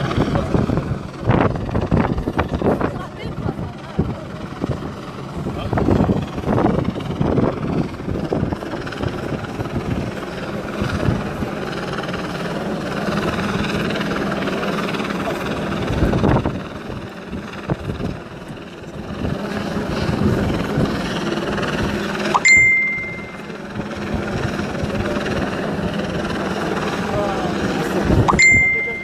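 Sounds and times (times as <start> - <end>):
wind buffeting microphone: 0.0 - 22.3, 23.5 - 28.5.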